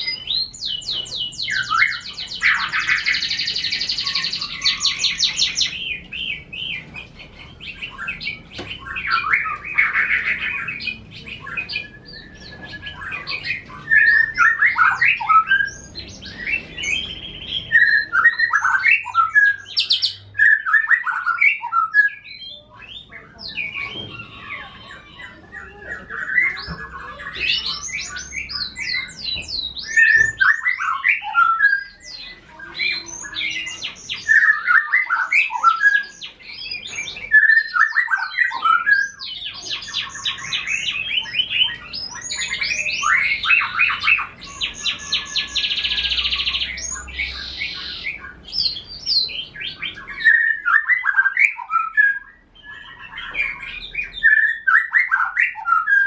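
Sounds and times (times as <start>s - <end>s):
canary singing with trills: 0.0s - 56.0s.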